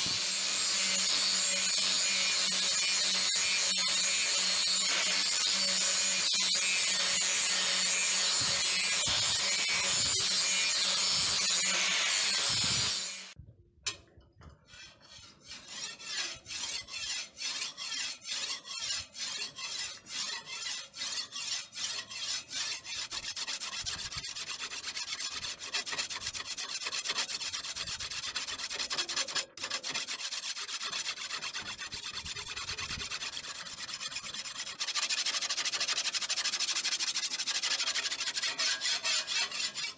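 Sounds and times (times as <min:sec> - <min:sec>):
angle grinder on steel: 0:00.0 - 0:13.4, 0:28.8 - 0:39.9
hand file strokes on blade: 0:00.0 - 0:13.4, 0:14.6 - 0:39.9.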